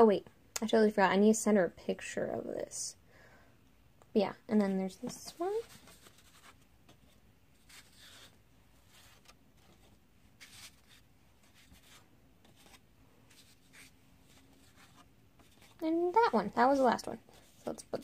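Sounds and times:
paper rustling on a table: 0:05.0 - 0:15.8.

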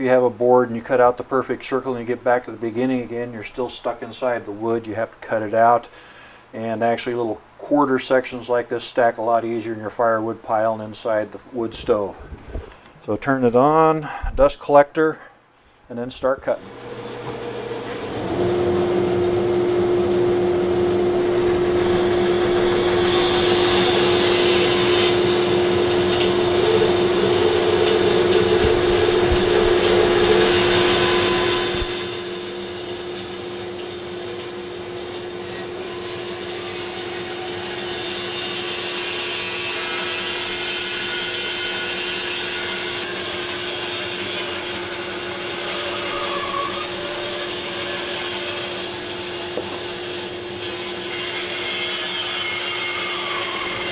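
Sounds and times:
bandsaw humming: 0:16.6 - 0:53.9
dust collector running: 0:16.6 - 0:53.9
saw blade cutting wood: 0:21.2 - 0:53.9.

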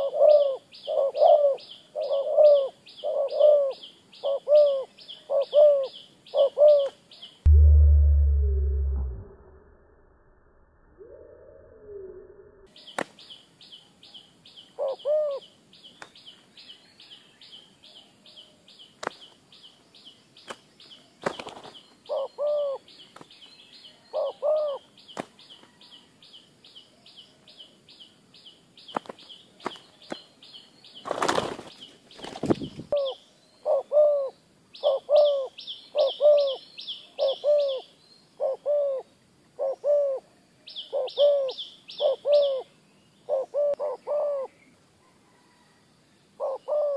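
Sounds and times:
dove cooing: 0:00.0 - 0:07.0, 0:14.8 - 0:15.4, 0:22.1 - 0:22.8, 0:24.1 - 0:24.9, 0:32.9 - 0:36.6, 0:37.2 - 0:40.3, 0:40.9 - 0:42.7, 0:43.3 - 0:44.6, 0:46.4 - 0:46.9
high-pitched chirping trill: 0:07.5 - 0:09.4
wings flapping: 0:21.2 - 0:21.8, 0:31.0 - 0:32.9.

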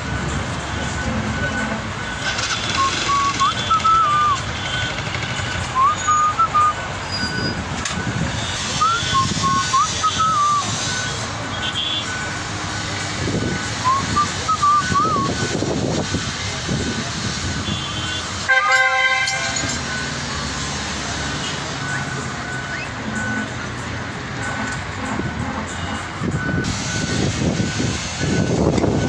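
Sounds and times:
street traffic passing: 0:00.0 - 0:29.0
vehicle horn honking: 0:11.1 - 0:12.2, 0:17.6 - 0:19.8.

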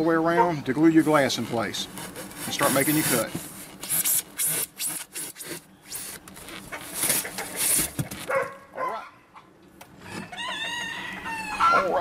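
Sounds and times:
knife sawing through foam: 0:01.9 - 0:08.1.

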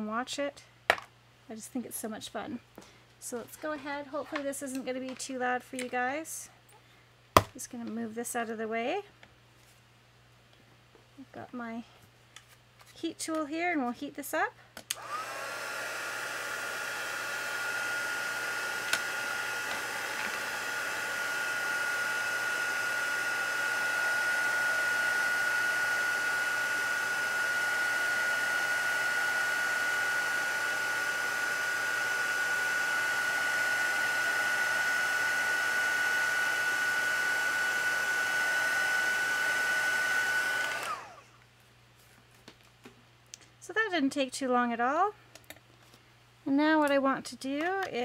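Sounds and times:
heat tool blowing hot air: 0:15.0 - 0:41.2.

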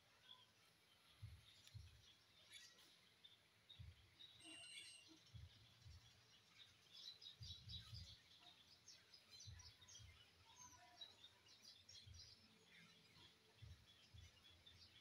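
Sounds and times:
low muffled thumps: 0:01.2 - 0:02.0, 0:03.8 - 0:04.2, 0:05.3 - 0:06.1, 0:07.4 - 0:08.2.

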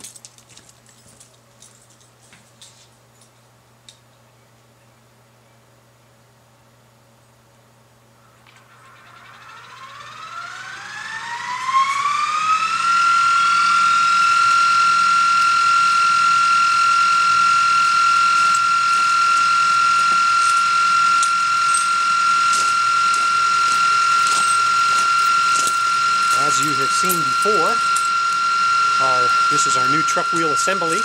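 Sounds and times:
motor whining: 0:08.4 - 0:31.0.

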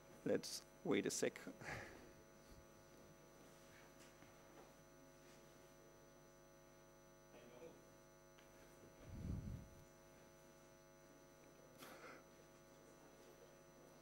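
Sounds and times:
electrical mains hum: 0:00.0 - 0:14.0.

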